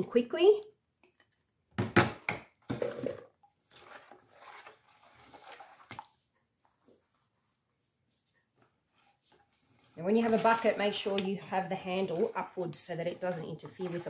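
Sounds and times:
spatula scraping thick batter: 2.8 - 6.2, 8.9 - 14.0.

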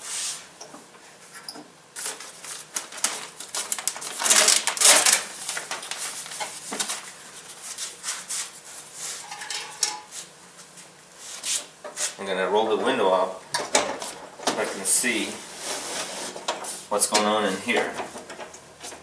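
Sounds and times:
plastic sheet crinkling as peeled: 2.0 - 8.3.

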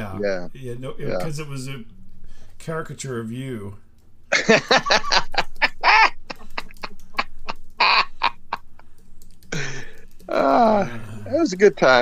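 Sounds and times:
man laughing hard: 4.3 - 8.8.

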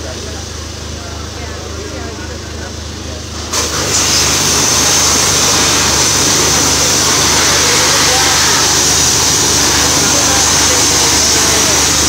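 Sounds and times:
washer motor humming: 0.0 - 12.0
pressure washer jet hissing: 3.2 - 12.0.

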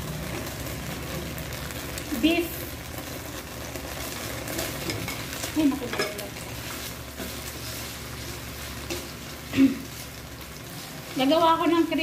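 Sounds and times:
meat sizzling in a pan: 0.0 - 12.0
spatula clattering on plate and pan: 4.6 - 6.3.

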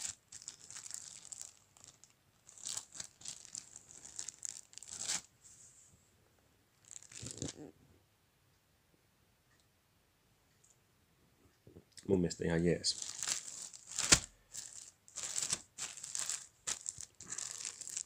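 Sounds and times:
plastic wrapping crinkling: 0.0 - 5.3, 6.8 - 7.6, 12.8 - 18.0.

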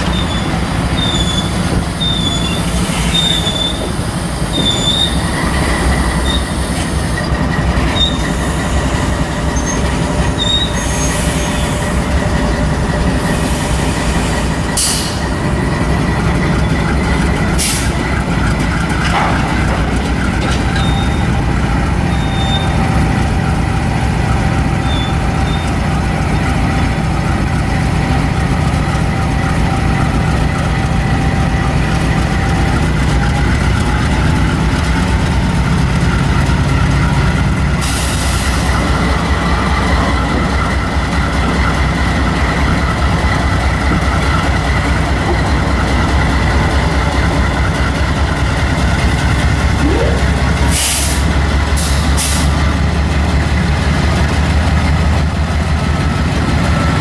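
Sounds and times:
train wheels squealing: 0.0 - 15.4, 20.6 - 23.0, 24.7 - 26.8
locomotive engine rumbling: 0.0 - 57.0.

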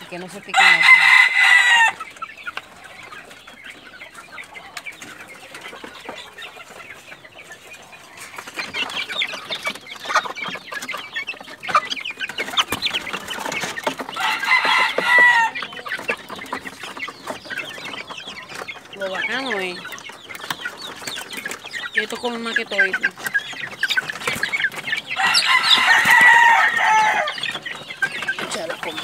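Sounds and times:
chickens clucking and chirping: 0.0 - 29.0
rooster crowing: 0.5 - 2.0, 14.2 - 15.6, 25.2 - 27.5.

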